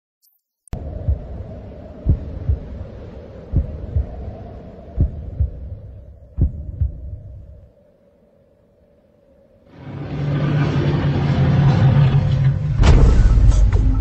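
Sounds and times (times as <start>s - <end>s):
heartbeat-like thumping: 0.8s - 7.7s
low steady hum: 0.8s - 12.8s.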